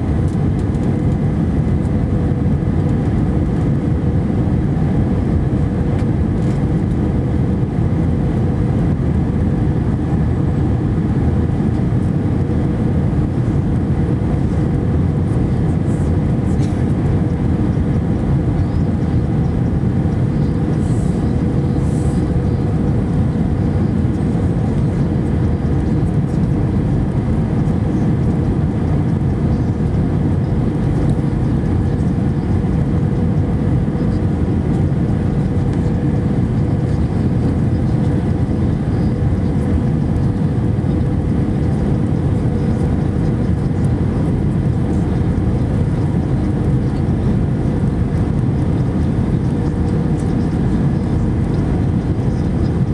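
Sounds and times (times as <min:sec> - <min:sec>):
jet engines rumbling: 0:00.0 - 0:52.9
steady cabin hum: 0:00.0 - 0:52.9.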